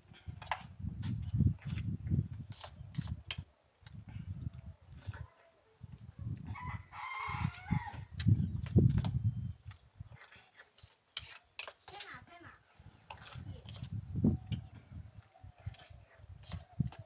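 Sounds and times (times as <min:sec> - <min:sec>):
rooster crowing: 0:06.5 - 0:08.1.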